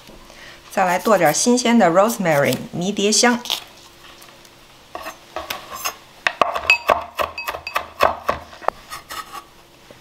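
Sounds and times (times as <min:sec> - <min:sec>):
knife chopping on wooden board: 0:06.3 - 0:08.5.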